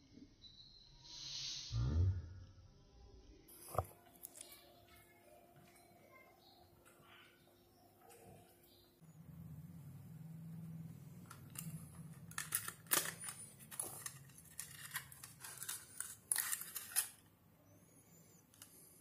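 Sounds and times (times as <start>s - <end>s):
blister strip crinkles and clicks: 11.2s - 17.3s.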